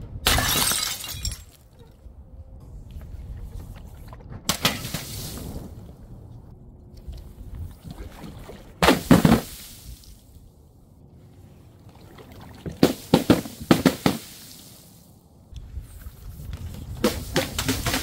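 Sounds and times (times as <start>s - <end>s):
water balloons bursting with splashes: 8.7s - 10.1s, 12.5s - 14.6s.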